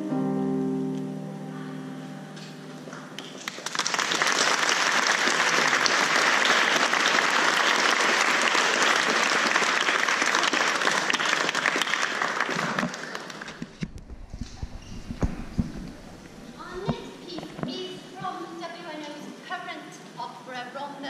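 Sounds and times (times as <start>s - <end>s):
audience applauding: 2.9s - 13.8s.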